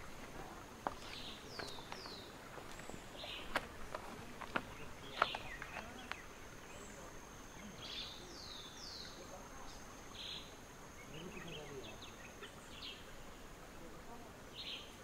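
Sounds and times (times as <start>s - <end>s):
footsteps on wooden sleepers: 0.0s - 6.3s
birds calling: 0.0s - 15.0s.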